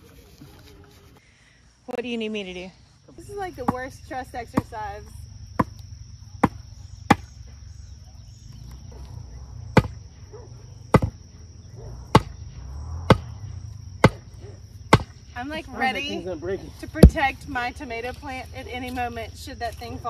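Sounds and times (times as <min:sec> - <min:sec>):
wooden stake being pounded: 0:05.6 - 0:05.8, 0:06.4 - 0:07.3, 0:09.8 - 0:10.0, 0:10.9 - 0:11.2, 0:12.1 - 0:12.4, 0:14.0 - 0:14.3, 0:14.9 - 0:15.2.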